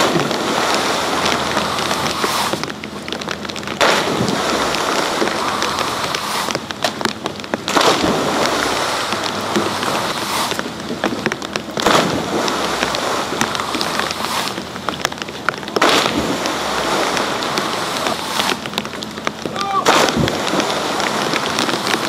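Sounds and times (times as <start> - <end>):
skiers splashing into pool: 0.0 - 2.6, 3.8 - 6.6, 7.7 - 10.7, 11.8 - 14.6, 15.8 - 18.7, 19.5 - 22.0
rushing churning water: 0.0 - 22.0.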